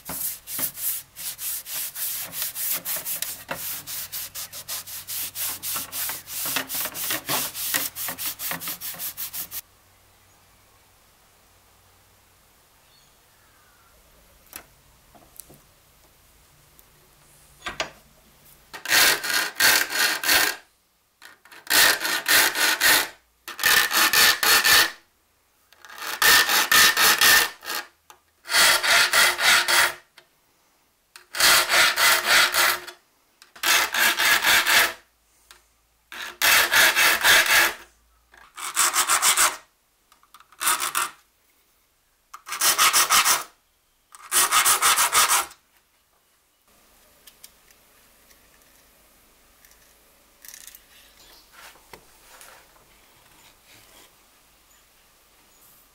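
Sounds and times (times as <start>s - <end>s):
hand file rasping on saw teeth: 0.0s - 9.6s, 28.5s - 30.0s, 31.3s - 32.9s, 36.2s - 37.8s, 44.3s - 45.5s.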